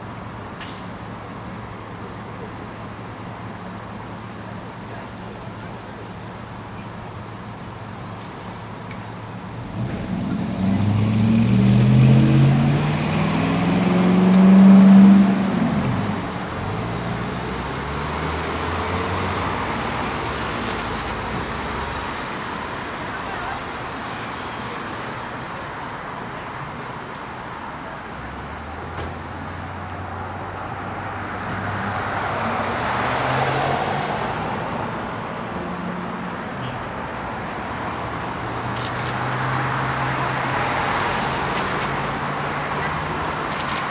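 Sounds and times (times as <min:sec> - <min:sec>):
steady traffic hum: 0:00.0 - 0:43.9
car accelerating past: 0:09.6 - 0:20.0
car passing: 0:09.6 - 0:25.3, 0:27.9 - 0:43.9.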